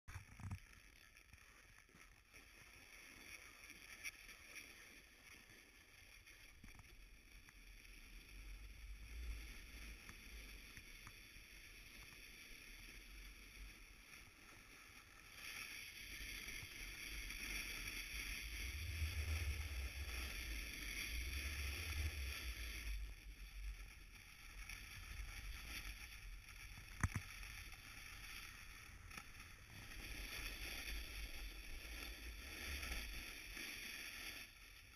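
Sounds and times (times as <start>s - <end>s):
skis sliding on packed snow: 0.1s - 34.9s
wind rumbling on microphone: 15.2s - 34.9s.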